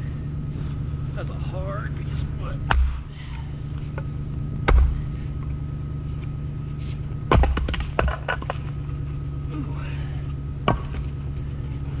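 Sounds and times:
steady low hum: 0.0 - 12.0
axe striking a log: 2.6 - 3.1, 4.6 - 5.0, 7.2 - 8.7, 10.6 - 11.2
split wood clattering down: 7.3 - 9.0.

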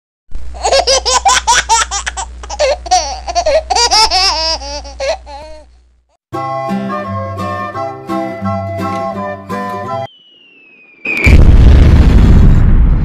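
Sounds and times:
child laughing: 0.6 - 5.7
plucked-string music: 6.4 - 10.1.

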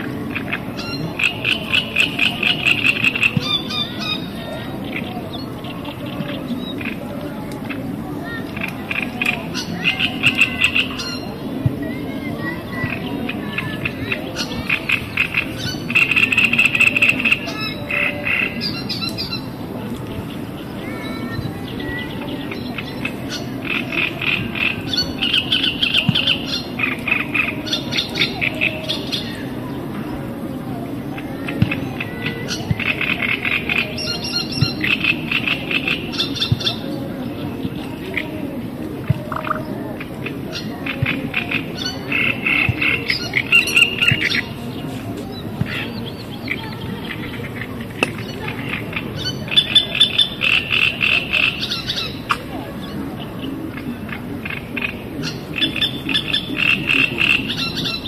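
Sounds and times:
frogs croaking: 0.0 - 7.1, 7.7 - 11.6, 12.8 - 19.6, 21.8 - 29.7, 38.0 - 44.6, 45.7 - 52.5, 53.4 - 58.0.

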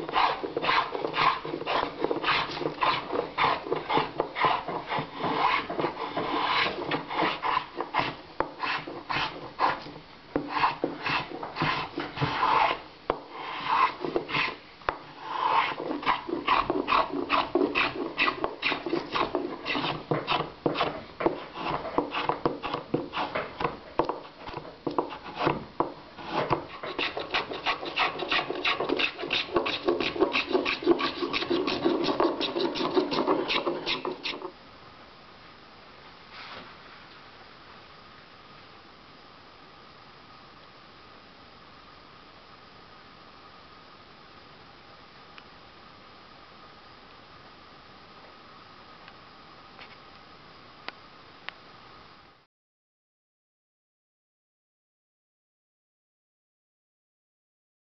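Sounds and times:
tool shaving wood: 0.0 - 12.8, 13.4 - 14.6, 15.2 - 23.8, 24.9 - 25.6, 26.2 - 34.5.

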